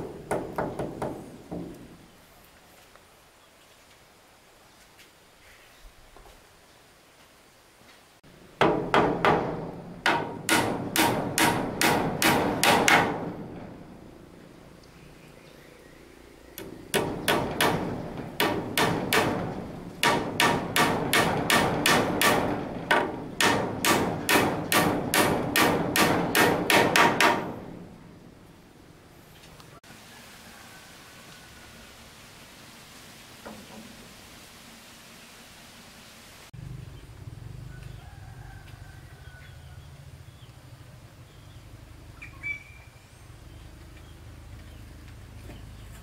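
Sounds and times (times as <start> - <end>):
hammer driving nails into wood: 8.6 - 13.5, 16.6 - 27.6.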